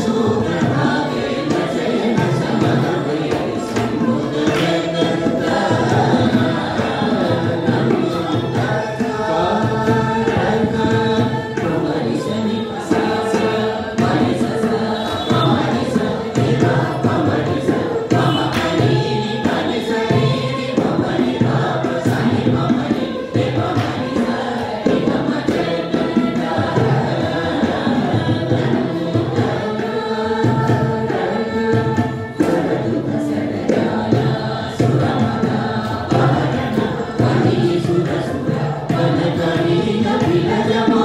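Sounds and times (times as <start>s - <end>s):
group of people singing: 0.0s - 41.0s
violin: 0.0s - 41.0s.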